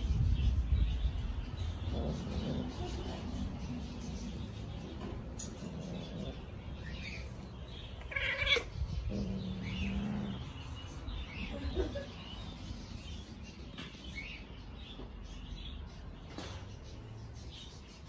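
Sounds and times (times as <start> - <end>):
cat meowing: 8.0 - 8.9.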